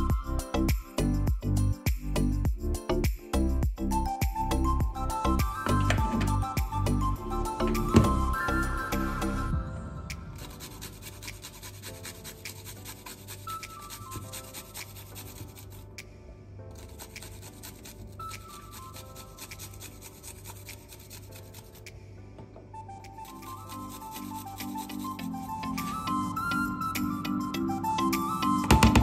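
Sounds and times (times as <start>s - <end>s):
soft background music: 0.0s - 29.0s
garlic rasping on metal grater: 10.5s - 15.8s, 16.8s - 21.8s.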